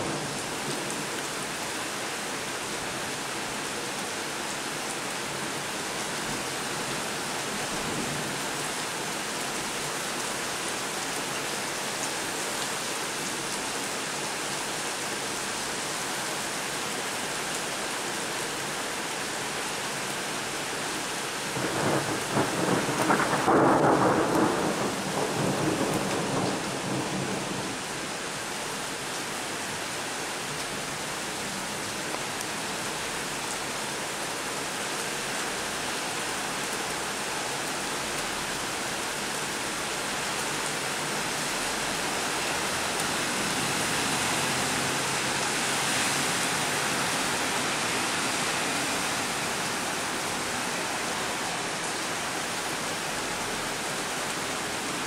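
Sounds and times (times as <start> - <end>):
heavy rain on a flooded street: 0.0 - 55.0
thunder rumbling: 21.6 - 27.8.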